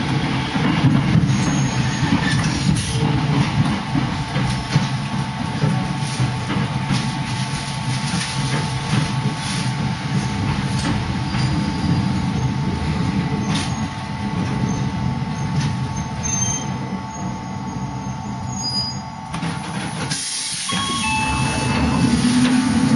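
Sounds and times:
train wheels rumbling: 0.0s - 22.9s
hiss: 20.1s - 20.8s.

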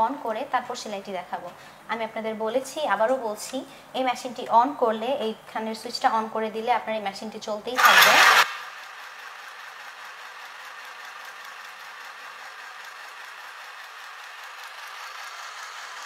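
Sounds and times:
sewing machine stitching rattle: 7.8s - 9.0s.

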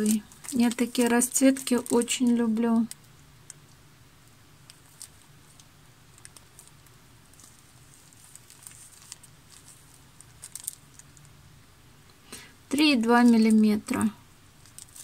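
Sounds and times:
packets clicking and crinkling: 0.0s - 3.7s, 4.6s - 11.4s, 14.6s - 15.0s
low room hum: 0.0s - 15.0s.

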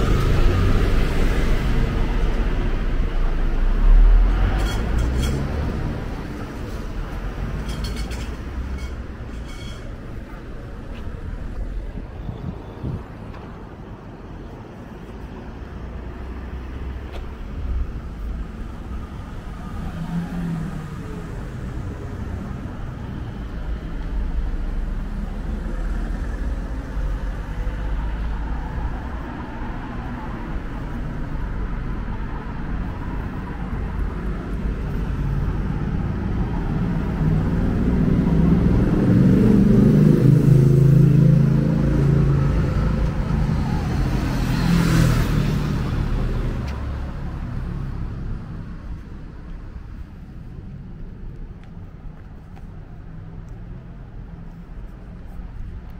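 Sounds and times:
traffic rumble: 0.0s - 55.9s
vehicle engine passing: 24.3s - 49.3s.

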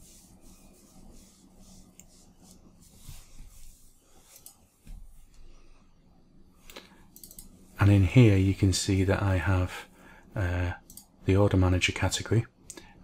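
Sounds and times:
steady low hum: 0.0s - 13.0s
computer mouse clicks: 4.3s - 4.6s, 6.6s - 7.6s, 10.8s - 11.1s.

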